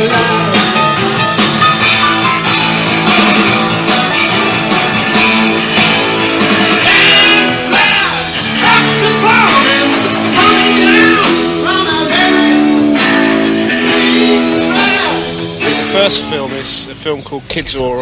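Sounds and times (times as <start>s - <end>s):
person singing: 0.0s - 1.0s, 6.6s - 16.6s
electric guitar: 0.0s - 16.7s
drum kit: 0.0s - 17.0s.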